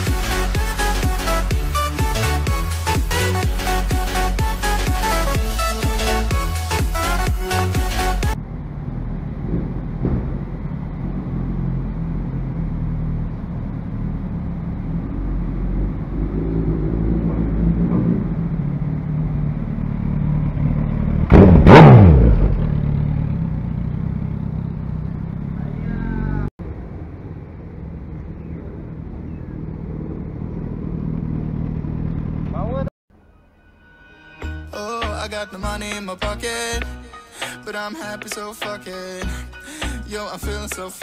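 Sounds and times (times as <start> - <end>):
motorcycle engine revving: 8.0 - 32.9.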